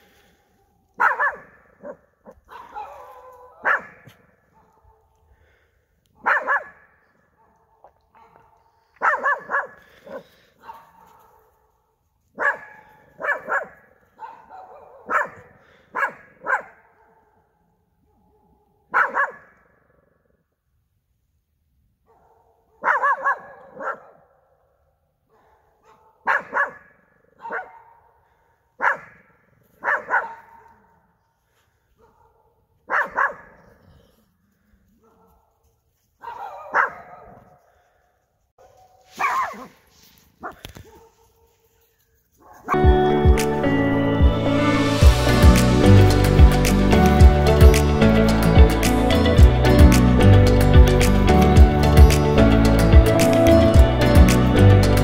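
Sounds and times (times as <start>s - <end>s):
dog barking: 0.4s - 5.6s, 6.2s - 19.9s, 22.0s - 31.1s, 31.9s - 34.0s, 35.0s - 39.8s, 40.4s - 41.7s, 42.4s - 42.8s.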